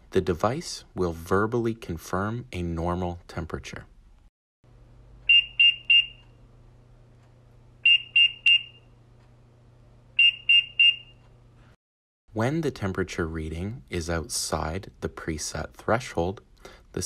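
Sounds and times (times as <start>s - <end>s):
faint steady hum: 0.0s - 17.0s
high-pitched alarm beeps: 5.3s - 6.3s, 7.8s - 9.0s, 10.2s - 11.3s.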